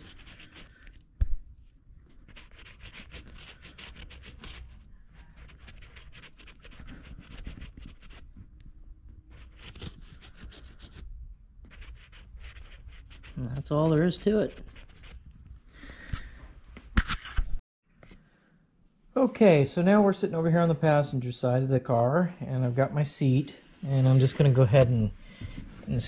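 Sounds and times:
marker scratching on leather: 0.0s - 1.0s, 2.1s - 8.3s, 9.3s - 15.2s.

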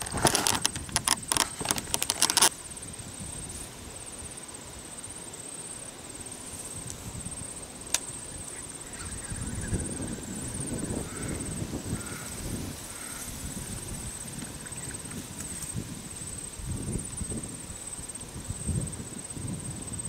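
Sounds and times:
sharp clicks and rattles: 0.0s - 2.5s
high-pitched insect trill: 0.0s - 20.0s.

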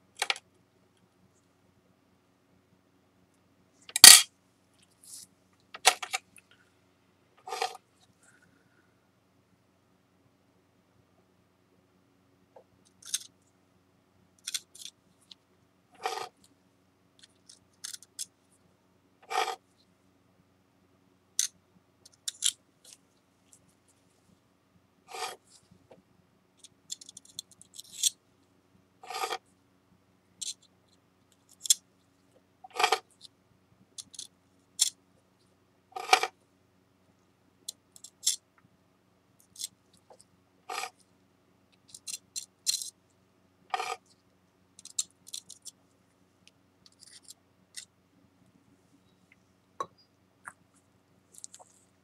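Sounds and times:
spatula scraping ceramic edge: 7.4s - 7.8s, 16.0s - 16.4s, 19.2s - 19.6s, 25.1s - 25.4s, 29.0s - 29.4s, 32.7s - 33.0s, 36.0s - 36.3s, 43.7s - 44.0s.

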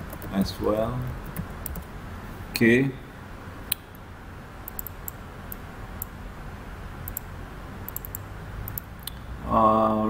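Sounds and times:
computer mouse clicks: 0.0s - 1.9s, 4.6s - 6.1s, 7.0s - 7.3s, 7.9s - 9.2s
faint low hum: 0.0s - 10.0s.

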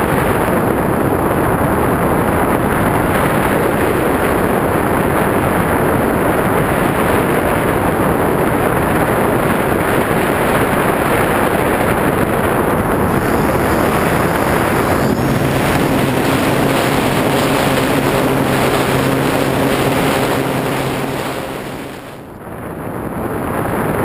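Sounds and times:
heavy wind over microphone: 0.0s - 24.0s
aircraft motor hum: 8.6s - 22.4s.

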